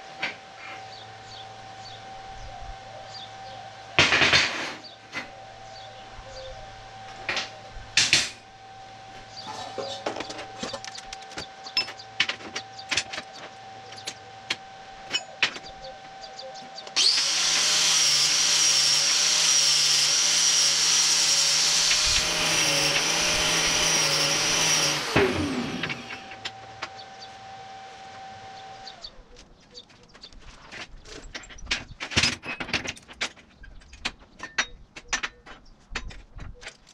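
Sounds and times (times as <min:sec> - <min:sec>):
electric grinder whining: 0:00.0 - 0:29.4.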